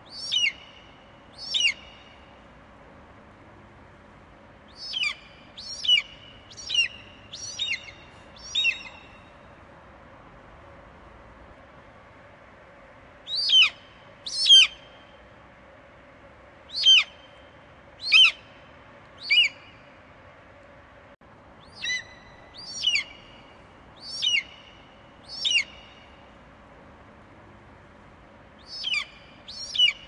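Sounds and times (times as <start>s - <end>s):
faint steady hiss: 0.0s - 30.0s
eagle whistled calls: 0.1s - 2.2s, 4.7s - 9.3s, 13.3s - 14.9s, 16.7s - 17.4s, 18.0s - 18.6s, 19.2s - 19.8s, 21.6s - 26.1s, 28.6s - 30.0s.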